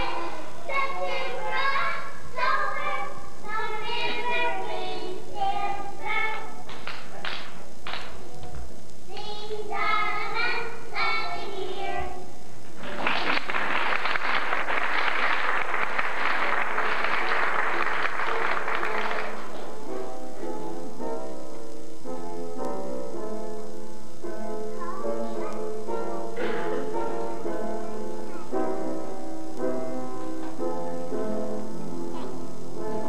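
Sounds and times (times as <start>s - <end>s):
young children singing: 0.0s - 12.4s
audience applause: 12.8s - 19.8s.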